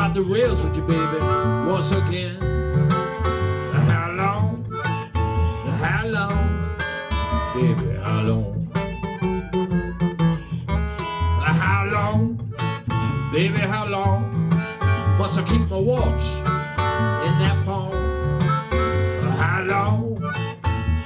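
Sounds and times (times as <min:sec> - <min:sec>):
fingerpicked acoustic guitar: 0:00.0 - 0:21.0
harmonica bending notes: 0:00.0 - 0:21.0
washtub bass plucking: 0:00.0 - 0:21.0.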